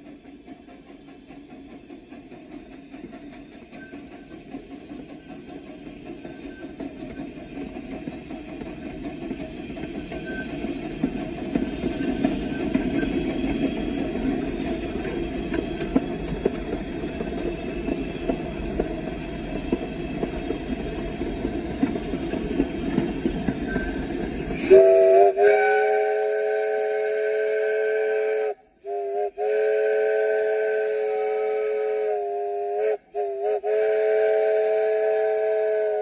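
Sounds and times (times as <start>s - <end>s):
wheels clicking on rails: 0.0s - 24.7s
steam locomotive rumble and rattle: 0.0s - 36.0s
steam whistle: 24.5s - 36.0s.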